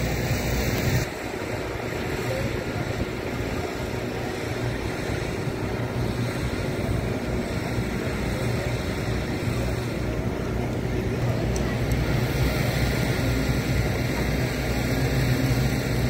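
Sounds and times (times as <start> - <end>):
outdoor rushing noise: 0.0 - 16.0
wind buffeting microphone: 0.0 - 16.0.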